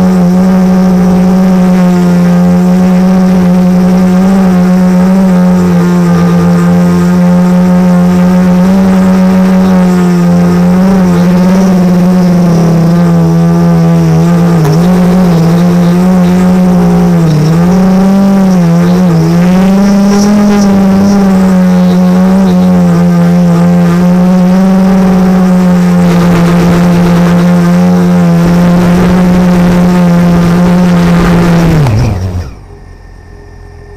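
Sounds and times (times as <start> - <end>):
drone motors humming: 0.0 - 33.9.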